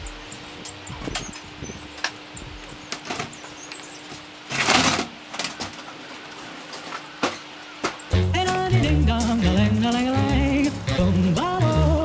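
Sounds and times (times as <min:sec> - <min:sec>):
scraping clatter: 0:02.9 - 0:08.1.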